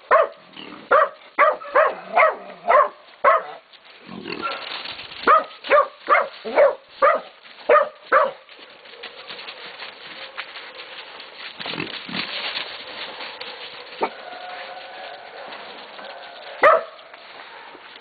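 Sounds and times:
dogs barking: 0.0 - 3.6, 4.4 - 9.4, 13.6 - 17.6
scuffling: 0.1 - 18.0.

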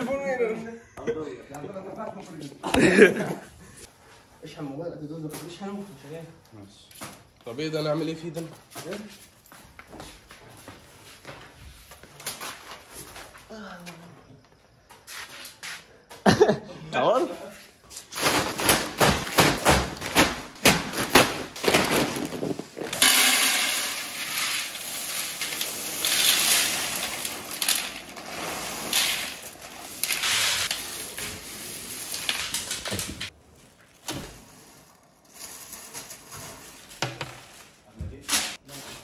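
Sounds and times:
sacks thudding on tiled floor: 17.9 - 39.0
beans rustling and clicking: 21.0 - 37.8
beans pouring into metal basin: 22.2 - 33.0.

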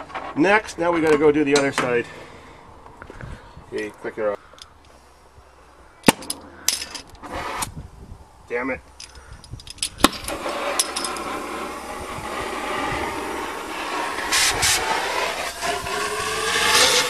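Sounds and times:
torch flame hissing: 7.2 - 7.7, 10.0 - 17.0.

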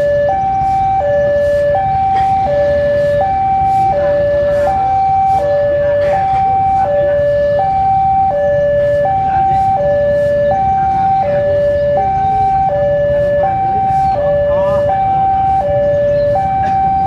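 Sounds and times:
two-tone crossing alarm: 0.0 - 17.0.

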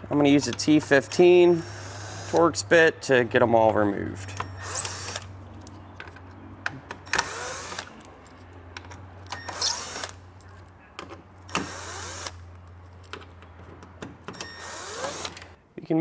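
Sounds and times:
cordless drill motor whine: 4.5 - 5.3, 7.1 - 7.9, 14.4 - 15.5.

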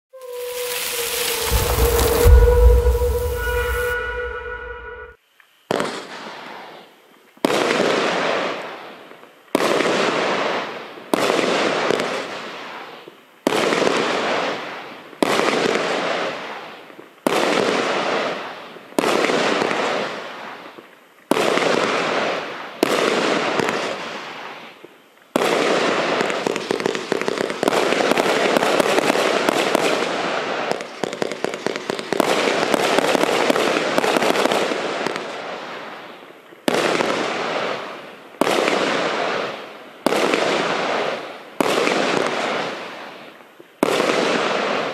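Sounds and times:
firework barrage bursts: 0.2 - 5.2.

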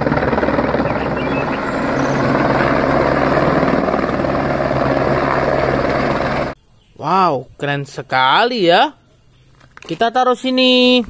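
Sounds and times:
helicopter hovering: 0.0 - 6.6.

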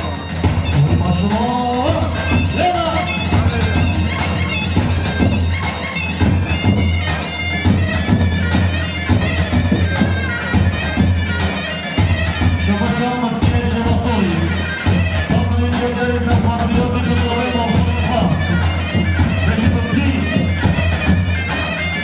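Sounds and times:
driving drum beat: 0.0 - 22.0
reedy wind instrument melody: 0.0 - 22.0.

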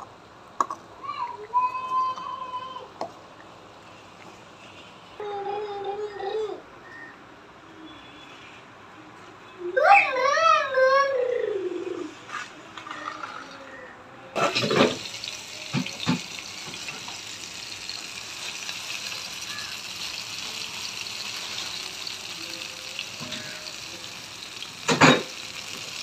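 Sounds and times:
knocks and oil spatters: 14.4 - 18.6
fish sizzling in hot oil: 14.4 - 26.0.

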